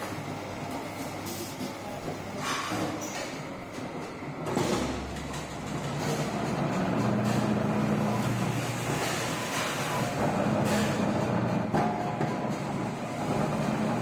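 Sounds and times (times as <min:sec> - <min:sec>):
press machine hum: 0:03.3 - 0:14.0.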